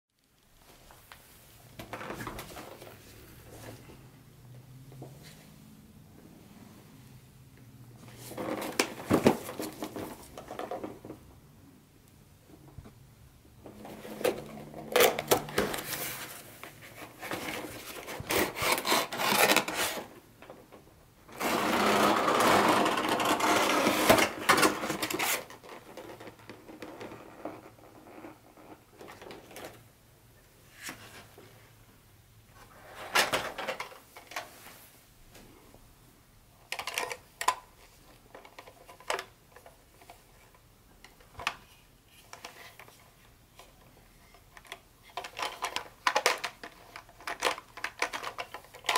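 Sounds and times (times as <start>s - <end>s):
cardboard and plastic rustling: 8.1s - 11.2s, 13.6s - 29.8s.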